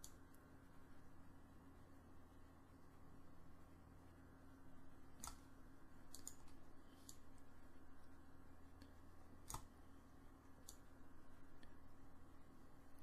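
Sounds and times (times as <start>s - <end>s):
computer mouse clicks: 0.0s - 0.4s, 5.1s - 7.4s, 8.8s - 9.8s, 10.5s - 11.0s
low steady hum: 0.0s - 13.0s.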